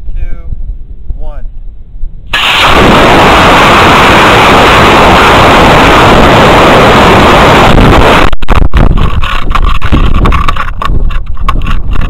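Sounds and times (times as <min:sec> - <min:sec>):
rocket motor igniting: 0:02.3 - 0:10.3
rocket motor rushing: 0:02.3 - 0:12.0.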